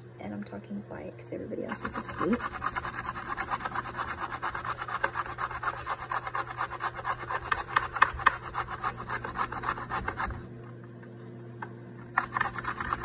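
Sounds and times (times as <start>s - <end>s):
zucchini scraping on metal grater: 1.7s - 10.4s, 12.2s - 13.0s.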